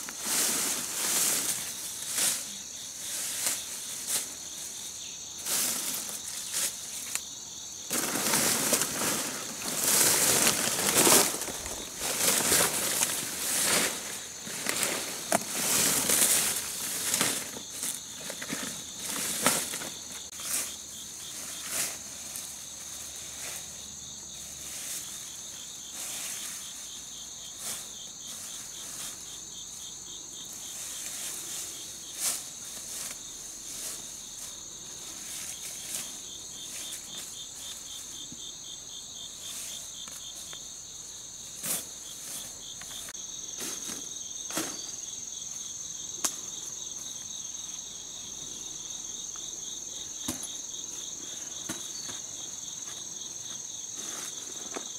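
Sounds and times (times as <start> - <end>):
leaves rustling and crackling: 0.0 - 29.8, 30.4 - 38.3
insects chirping: 0.0 - 54.9.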